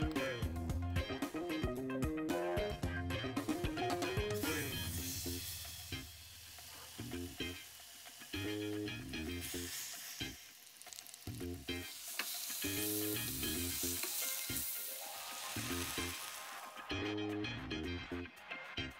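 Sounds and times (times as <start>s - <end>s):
fish sizzling in hot oil: 4.4s - 16.9s.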